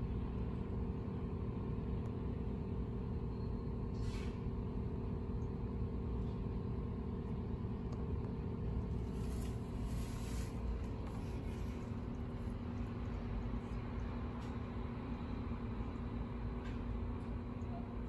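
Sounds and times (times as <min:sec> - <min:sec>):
low mechanical rumble and hum: 0:00.0 - 0:18.0
short hiss: 0:04.0 - 0:04.4.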